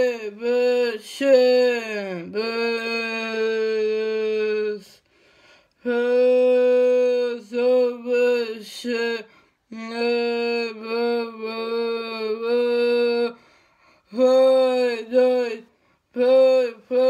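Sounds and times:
woman singing unaccompanied: 0.0 - 5.0, 5.8 - 17.0.

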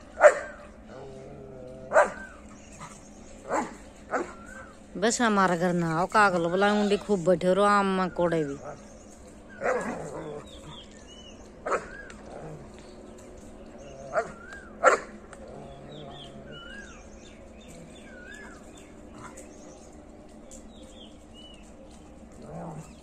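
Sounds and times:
dog barking: 0.2 - 0.6, 1.9 - 2.2, 11.7 - 12.0, 14.2 - 15.2
faint bird whistles: 14.2 - 14.8.

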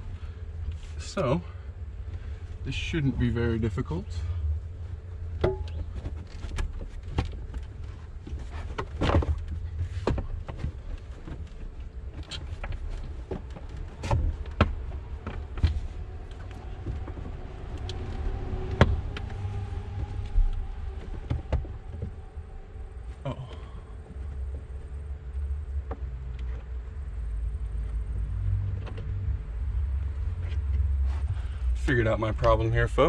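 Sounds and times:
low rumble: 0.0 - 33.0.

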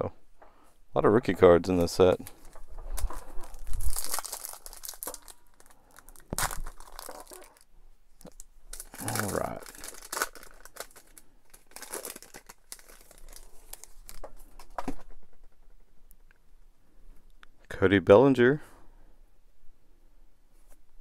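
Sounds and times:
foil wrapper tearing and crinkling: 2.2 - 14.7.

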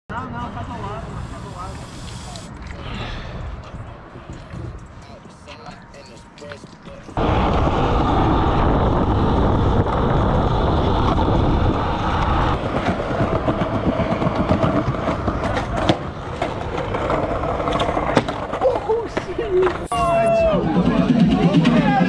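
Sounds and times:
skateboard wheels rolling on stone: 6.6 - 22.0.

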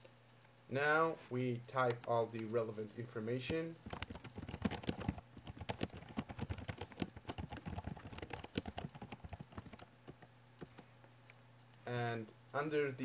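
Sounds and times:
keyboard typing: 3.8 - 10.9.

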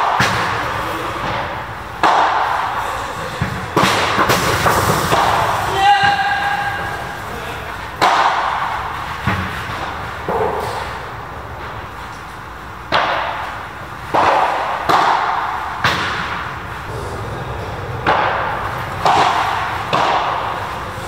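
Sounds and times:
padel ball struck by rackets: 18.0 - 20.8.

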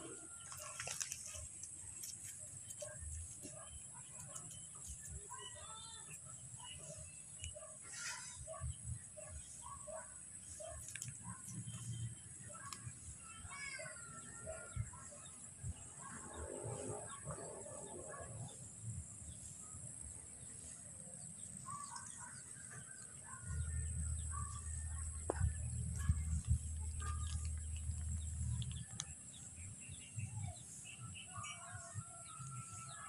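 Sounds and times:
small birds chirping: 0.0 - 17.8, 18.4 - 32.2
wind on microphone: 25.2 - 28.8.

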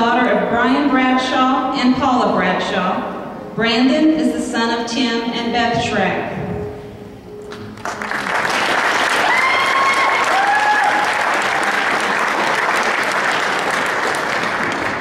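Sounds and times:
audience applauding: 7.8 - 15.0.

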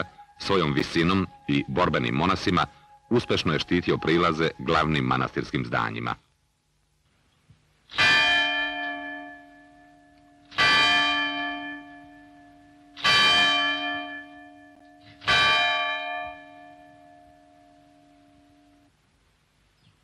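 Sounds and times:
church bell ringing: 0.0 - 4.8, 7.9 - 18.9.

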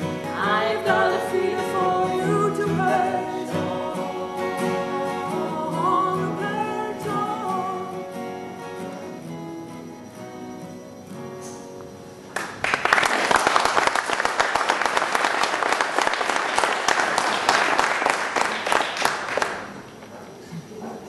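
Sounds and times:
acoustic guitar chords: 0.0 - 12.6
audience applause: 12.3 - 19.9.

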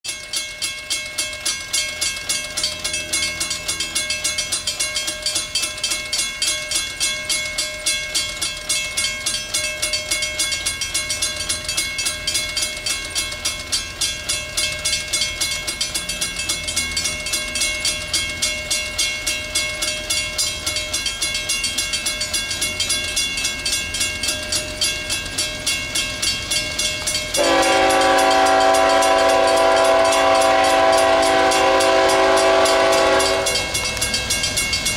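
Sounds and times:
crossing bell ringing: 0.1 - 34.9
locomotive engines rumbling: 1.3 - 34.9
train air horn: 27.4 - 33.8.

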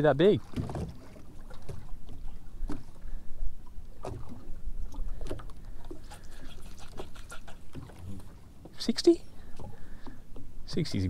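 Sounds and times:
water slapping against boat hull: 0.0 - 3.2, 3.9 - 8.8.

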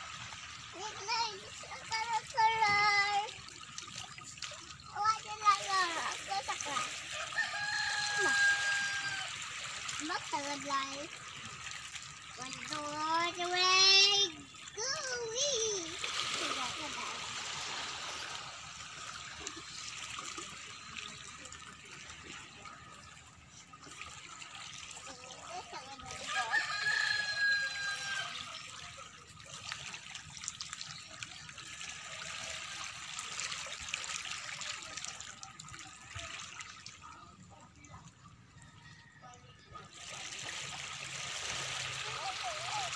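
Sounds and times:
water running and trickling: 0.0 - 42.9
rooster crowing: 7.1 - 9.4, 26.3 - 28.4.

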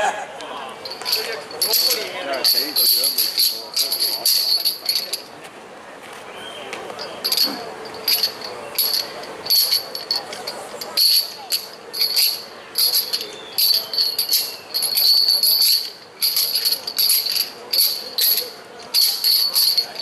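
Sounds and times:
metal rings jangling: 0.8 - 5.3, 7.0 - 20.0.

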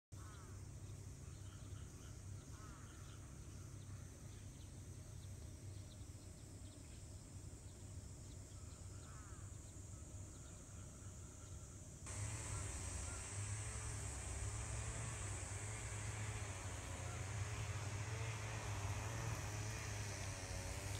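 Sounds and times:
faint insects chirping: 0.2 - 20.9
hiss with wavering tone: 12.0 - 20.9
low steady rumble: 12.1 - 20.9
short arched calls: 12.1 - 20.9.

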